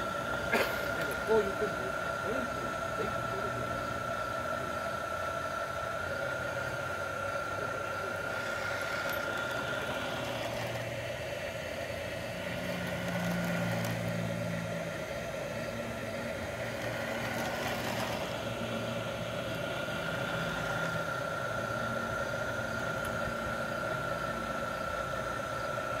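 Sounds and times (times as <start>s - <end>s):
model locomotive motor whine: 0.0s - 26.0s
wheel rumble: 6.0s - 26.0s.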